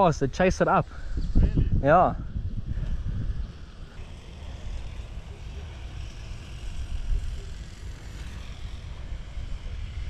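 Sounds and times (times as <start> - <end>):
wind buffeting microphone: 0.0 - 5.1.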